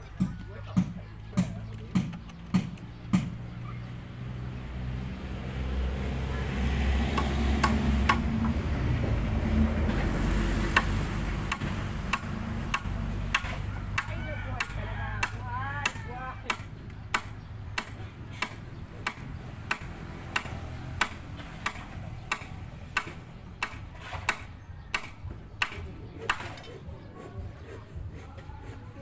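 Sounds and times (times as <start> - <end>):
vehicle passing: 0.0 - 24.3
hammer knocking on timber: 0.1 - 3.4.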